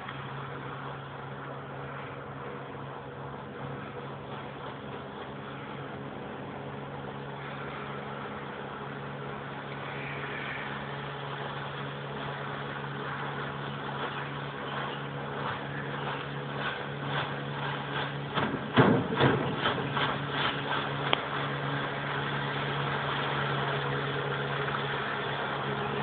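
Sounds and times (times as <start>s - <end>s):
outboard motor humming: 0.0s - 26.0s
sharp knocks and slaps: 18.0s - 21.2s.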